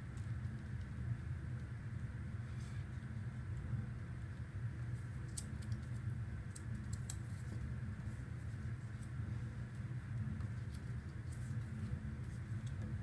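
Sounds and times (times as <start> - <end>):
low background hum: 0.0 - 13.0
paper strips clicking and crackling: 5.0 - 7.6.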